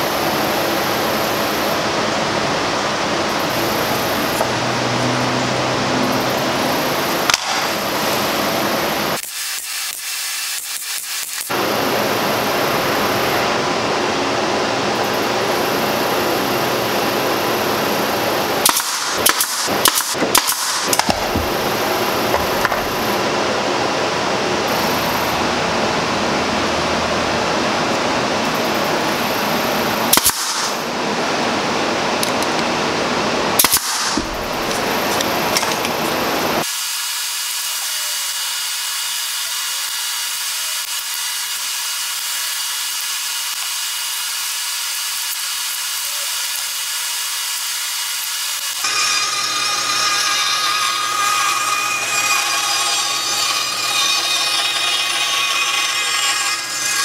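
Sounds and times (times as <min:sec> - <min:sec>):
nail gun shots: 0:07.3 - 0:08.0, 0:09.2 - 0:11.5, 0:18.6 - 0:23.0, 0:30.1 - 0:30.9, 0:33.6 - 0:34.9.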